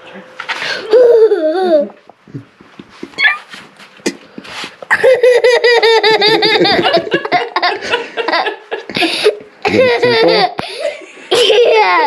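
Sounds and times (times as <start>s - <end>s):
young child laughing: 0.8s - 2.0s, 4.9s - 12.0s.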